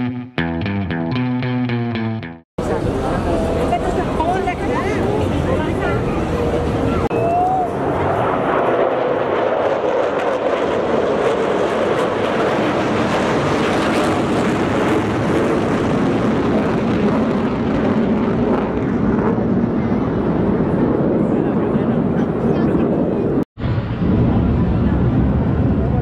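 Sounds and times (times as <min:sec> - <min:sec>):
military jets flying over: 0:02.6 - 0:26.0.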